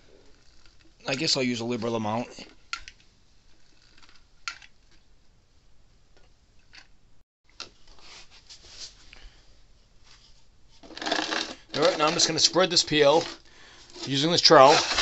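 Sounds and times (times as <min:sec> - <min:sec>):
faint scraping and rustling: 0:03.4 - 0:04.2, 0:07.8 - 0:15.0.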